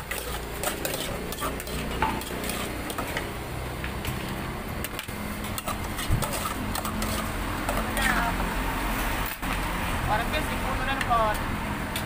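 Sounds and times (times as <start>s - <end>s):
metal spoon scraping in pot: 0.0s - 3.4s, 4.0s - 8.3s.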